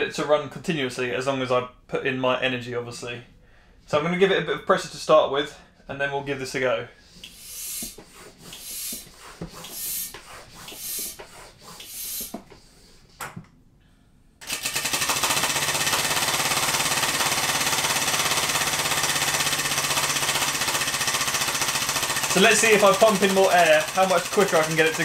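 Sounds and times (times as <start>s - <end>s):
hand air pump hissing: 7.0s - 13.1s, 15.8s - 25.0s.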